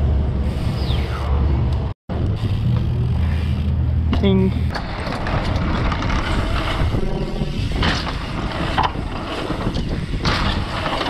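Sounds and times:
mountain bike rattling: 2.2 - 11.0
wind buffeting microphone: 4.8 - 11.0.

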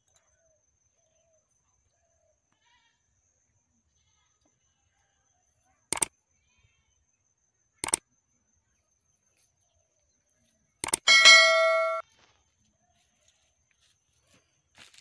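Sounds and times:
short sharp clicks: 10.8 - 11.1
metallic bell ding: 11.1 - 12.0.

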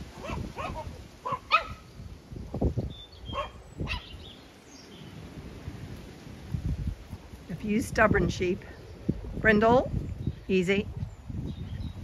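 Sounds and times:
small dog yipping: 0.2 - 1.8, 3.3 - 4.2.

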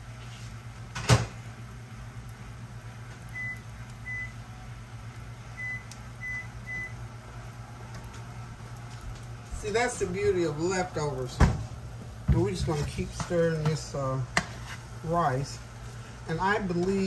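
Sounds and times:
steady low hum: 0.0 - 17.0
keypad beeps: 3.3 - 4.3, 5.6 - 7.0.

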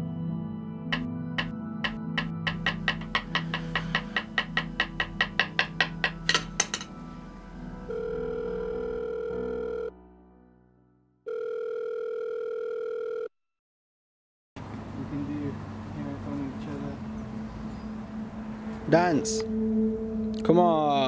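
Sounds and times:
music with clicking beat: 1.0 - 6.7
telephone ringing tone: 7.9 - 10.0, 11.3 - 13.3.

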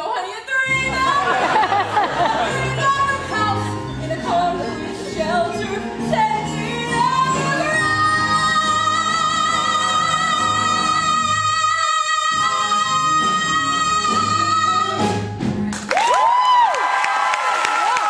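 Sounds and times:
woman singing: 0.0 - 1.4, 2.3 - 15.2
band accompaniment: 0.7 - 15.9.

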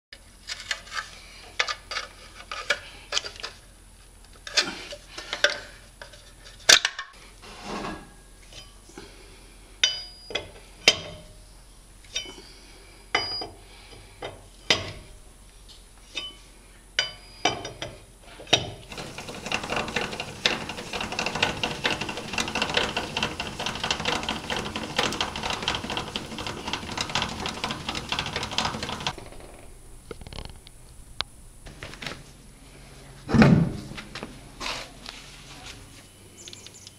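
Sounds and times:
rough rattling noise: 18.9 - 32.2.

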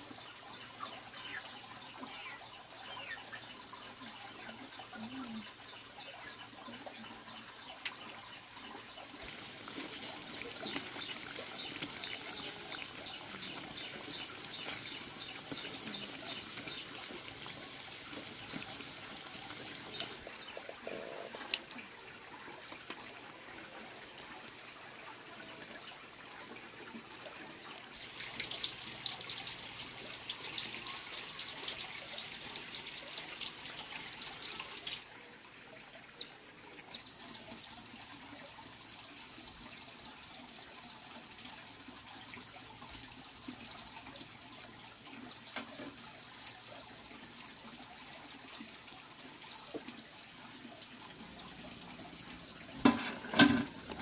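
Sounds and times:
hot oil sizzling and crackling: 9.1 - 21.8, 27.9 - 35.1, 51.1 - 54.0.

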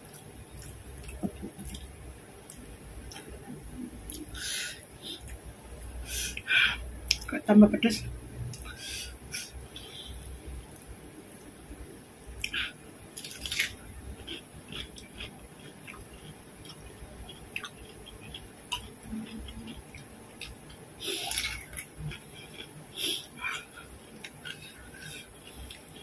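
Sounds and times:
wet chewing clicks: 12.4 - 26.0
crisp cucumber bites: 13.2 - 22.8.

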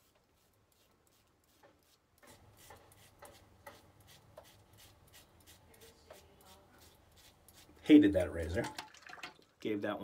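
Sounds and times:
razor scraping stubble: 0.0 - 7.9.

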